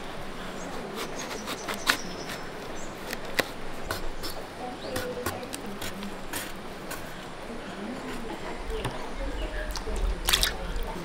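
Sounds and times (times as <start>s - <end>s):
knife scraping fruit rind: 0.0s - 7.3s.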